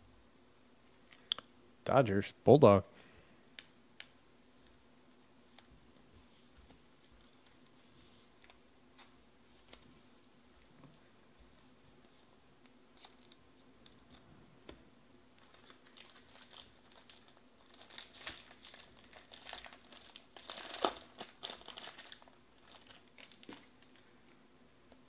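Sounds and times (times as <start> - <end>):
foil wrapper crinkling: 15.4 - 24.1.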